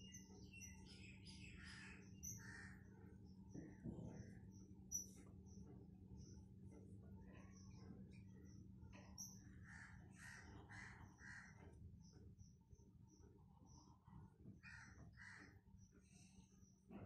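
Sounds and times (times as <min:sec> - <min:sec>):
faint bird calls: 0:08.9 - 0:11.8, 0:13.7 - 0:17.0.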